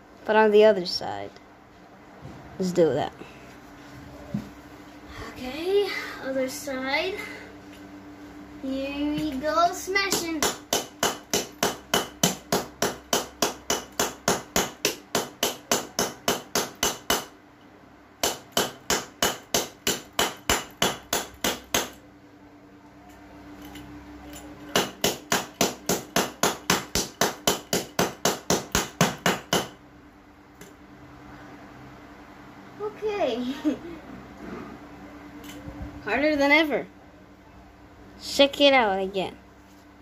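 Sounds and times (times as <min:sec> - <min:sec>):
faint steady hum: 0:00.0 - 0:40.0
hammer pounding on stone tile: 0:10.1 - 0:17.3, 0:18.2 - 0:22.0, 0:24.7 - 0:29.8.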